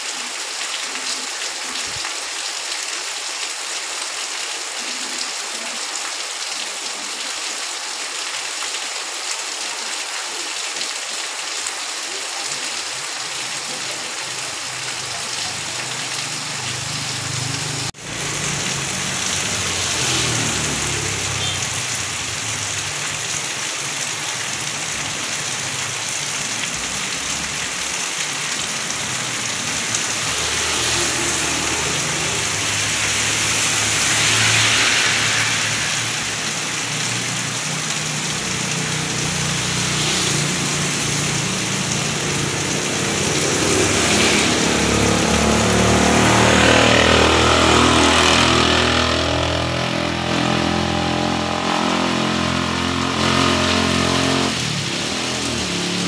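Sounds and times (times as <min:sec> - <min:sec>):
heavy rain on pavement: 0:00.0 - 0:56.0
traffic rumble on wet road: 0:00.0 - 0:56.0
motor scooter passing: 0:16.9 - 0:21.9, 0:29.8 - 0:56.0.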